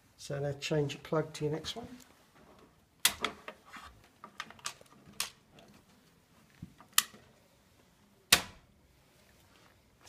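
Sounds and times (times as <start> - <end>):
cable handling: 2.0 - 7.4.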